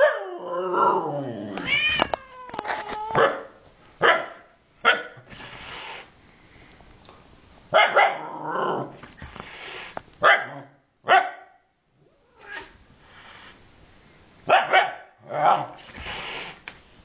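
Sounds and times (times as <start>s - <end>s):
dog barking: 3.2s - 5.2s, 7.7s - 8.3s, 10.2s - 11.7s, 14.5s - 15.7s.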